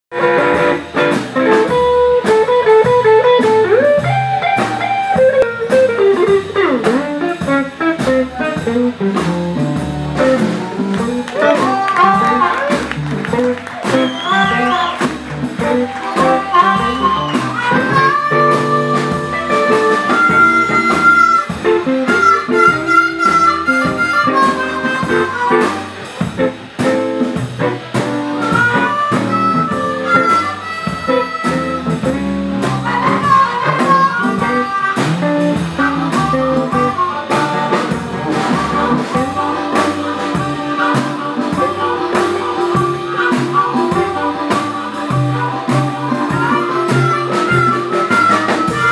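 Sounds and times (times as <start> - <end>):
band with drums and upright bass: 0.1 - 48.9
blues harmonica: 0.1 - 48.9.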